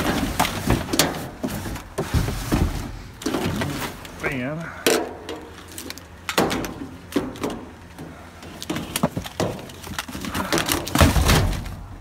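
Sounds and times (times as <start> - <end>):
junk knocking in dumpster: 0.0 - 4.0, 8.8 - 12.0.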